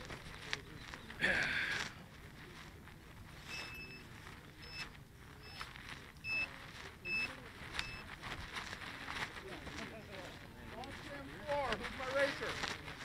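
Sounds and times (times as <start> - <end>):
faint voices: 0.0 - 13.0
electronic beeper beeps: 3.5 - 6.5.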